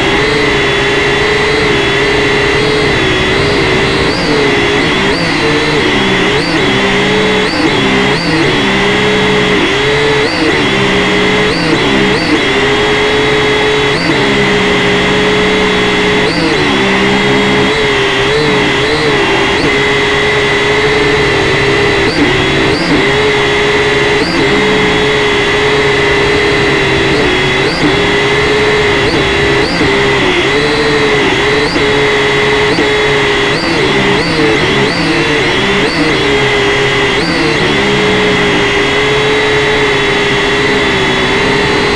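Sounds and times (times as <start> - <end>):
quadcopter propellers whining: 0.0 - 41.9.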